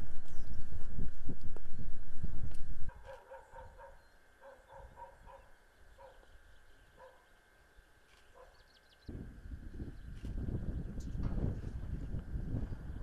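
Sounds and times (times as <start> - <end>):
faint dog barking: 2.9 - 6.3, 7.0 - 7.3, 8.3 - 8.6.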